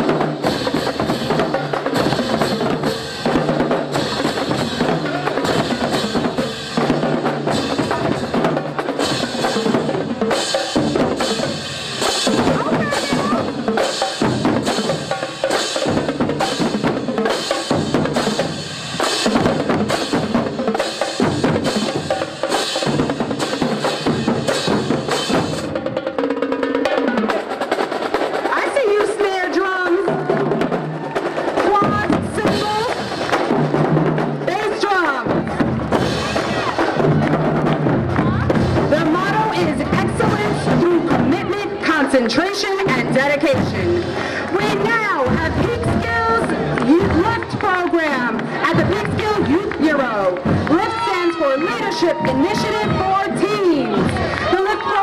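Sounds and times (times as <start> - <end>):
marching drumline: 0.0 - 55.0.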